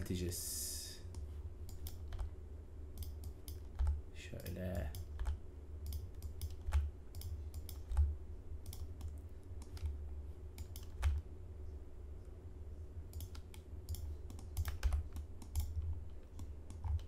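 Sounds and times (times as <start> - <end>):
faint steady hum: 0.0 - 17.0
keyboard and mouse clicking: 1.1 - 2.3, 2.9 - 11.2, 13.1 - 17.0.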